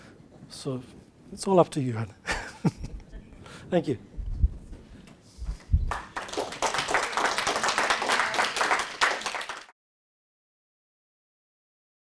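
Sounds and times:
audience applauding: 5.9 - 9.7.

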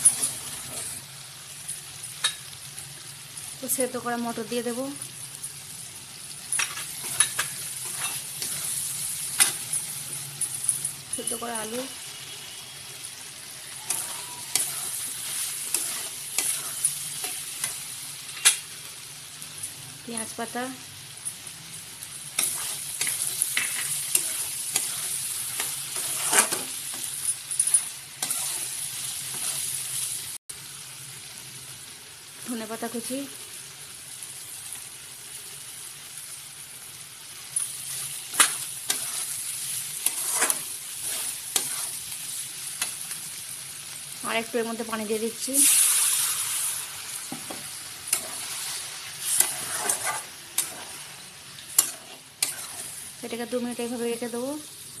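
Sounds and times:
spices sizzling in a pan: 0.0 - 55.0
spatula scraping metal pan: 6.6 - 9.9, 13.8 - 17.8, 22.4 - 29.8, 37.9 - 42.0, 48.1 - 53.1.

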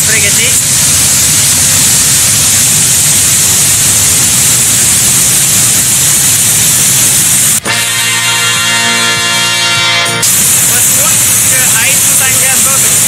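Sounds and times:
waterfall roaring: 0.0 - 13.0
held musical chord: 7.6 - 10.4.

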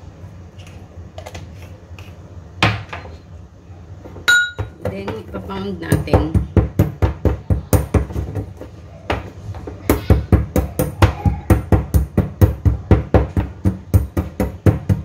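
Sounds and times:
pestle pounding spices in mortar: 4.6 - 8.6, 9.8 - 15.0.

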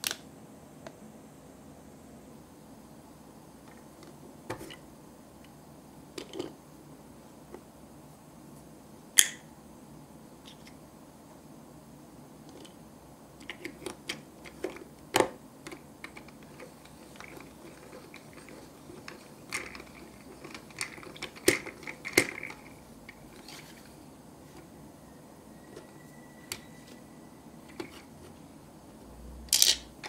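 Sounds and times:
plastic toy parts clicking: 13.4 - 23.2, 29.5 - 29.9.

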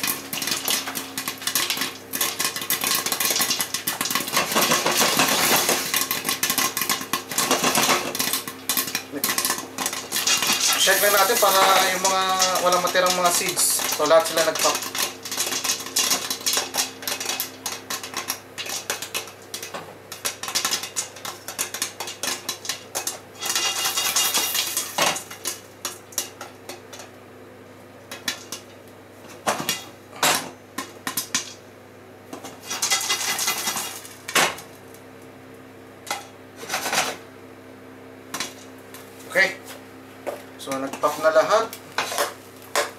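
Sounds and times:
popcorn rustling in shaken pot: 0.0 - 27.0, 32.4 - 34.9, 38.4 - 42.9
popcorn popping in pot: 0.0 - 42.9.

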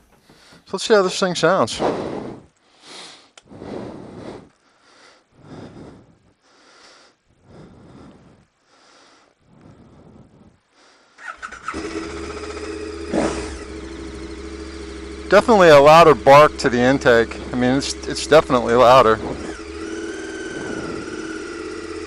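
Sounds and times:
motorcycle engine starting and idling: 11.2 - 22.0.

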